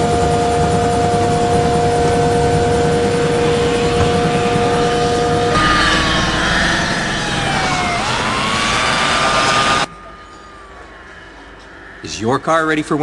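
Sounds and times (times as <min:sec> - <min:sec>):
police siren: 0:00.4 - 0:11.4
steady two-note tone: 0:01.3 - 0:13.0
vehicle noise: 0:02.2 - 0:09.9.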